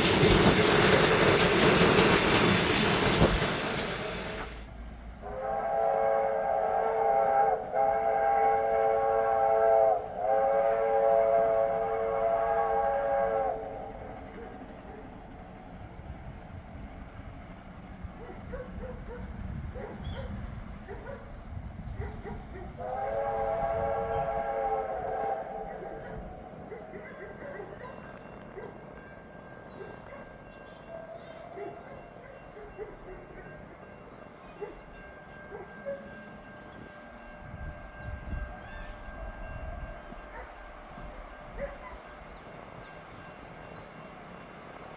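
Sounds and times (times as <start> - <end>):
locomotive steam whistle: 5.2 - 14.2, 22.8 - 26.1
distant steam locomotive whistle: 5.2 - 14.7, 22.8 - 26.8, 29.4 - 44.9
wind rumble on microphone: 18.1 - 24.5, 37.4 - 40.2
dog yelping: 26.0 - 28.0.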